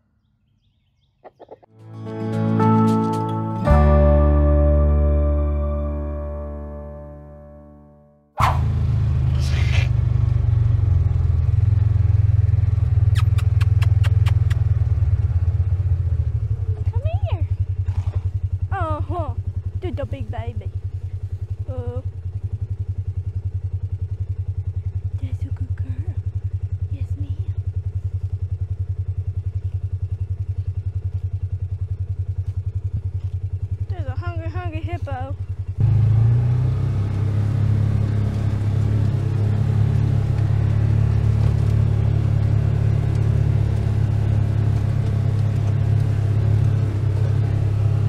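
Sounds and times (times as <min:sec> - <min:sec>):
engine running with deep drone: 0:00.0 - 0:48.0
sharp clicks: 0:13.1 - 0:14.8.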